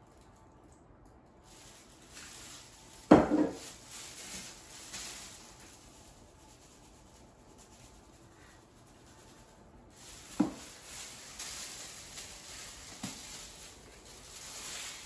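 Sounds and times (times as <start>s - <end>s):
salt shaken from canister: 1.4s - 15.0s
glass bottle knocking on countertop: 3.1s - 3.6s.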